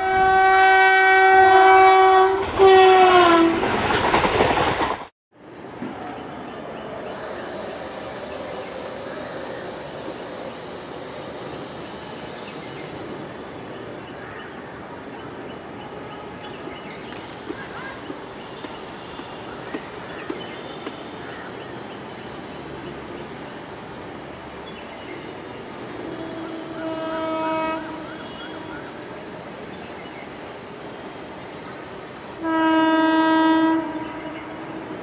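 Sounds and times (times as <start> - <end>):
train horn blast: 0.0 - 3.8, 26.0 - 29.0, 32.4 - 35.0.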